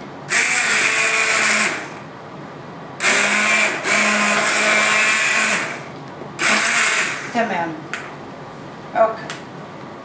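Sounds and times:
immersion blender running: 0.3s - 2.0s, 3.0s - 7.4s.

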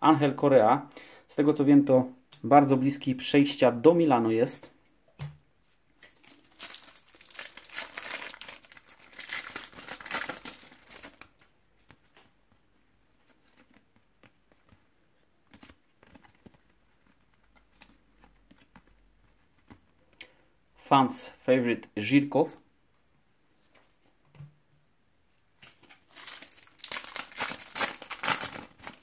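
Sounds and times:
wrapper tearing and crinkling: 6.1s - 11.4s, 25.6s - 29.0s
cards being shuffled: 25.6s - 29.0s.

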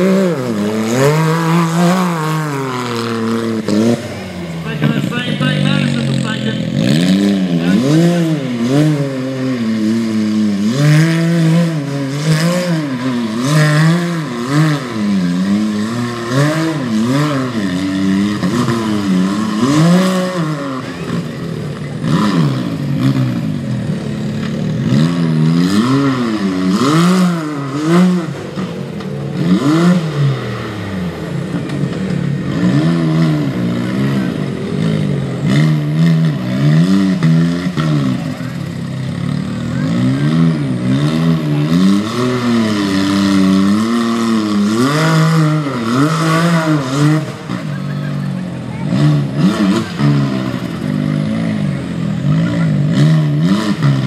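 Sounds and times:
engine revving: 0.0s - 54.0s.

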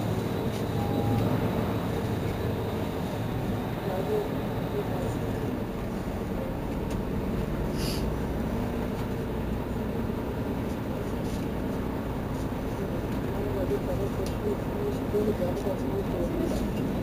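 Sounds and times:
bus engine idling: 0.0s - 17.0s
short air hiss: 7.7s - 8.1s.

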